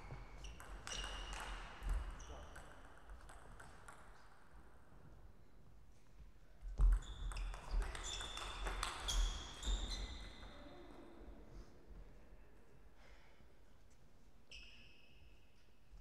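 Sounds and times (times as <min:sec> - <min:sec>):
shoes squeaking on floor: 0:06.8 - 0:10.4.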